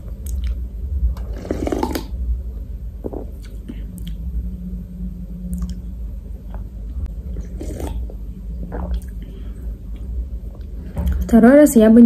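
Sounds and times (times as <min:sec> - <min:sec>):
steady low hum: 0:00.0 - 0:12.0
person gulping and swallowing: 0:01.2 - 0:02.2, 0:03.0 - 0:04.3, 0:05.5 - 0:06.7, 0:07.3 - 0:11.3.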